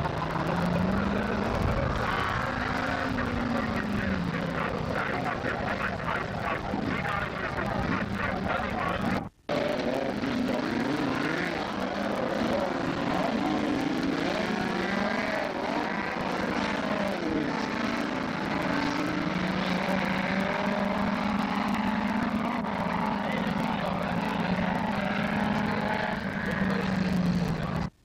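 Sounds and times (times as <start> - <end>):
racing car engines revving: 0.0 - 28.0.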